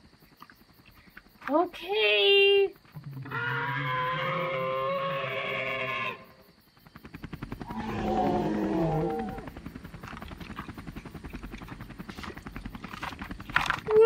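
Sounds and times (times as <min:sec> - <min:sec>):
dinosaur roar: 0:03.0 - 0:06.4, 0:07.6 - 0:09.6
toy helicopter rotor chopping: 0:07.0 - 0:14.0.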